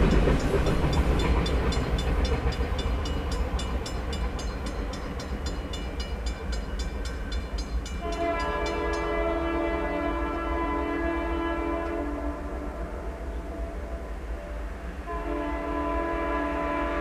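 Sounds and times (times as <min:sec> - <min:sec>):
railroad crossing bell ringing: 0:00.0 - 0:09.8
freight train rumble: 0:00.0 - 0:17.0
locomotive horn blast: 0:08.0 - 0:17.0.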